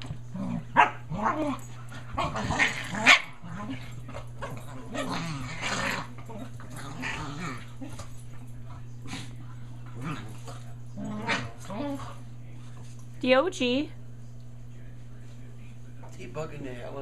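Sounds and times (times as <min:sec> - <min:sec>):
small dogs play-fighting and vocalising: 0:00.0 - 0:13.1.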